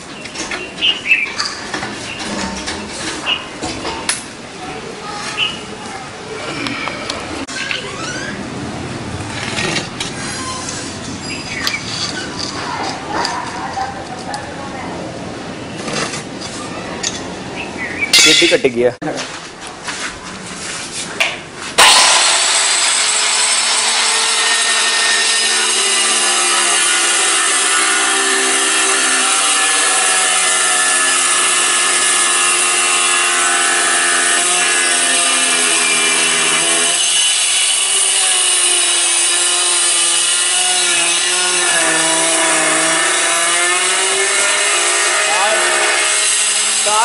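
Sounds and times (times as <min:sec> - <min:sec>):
electric tile cutter whining: 0:21.8 - 0:47.0.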